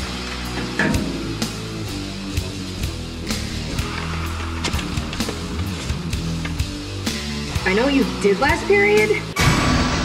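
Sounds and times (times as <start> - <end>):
rock guitar: 0.0 - 7.7.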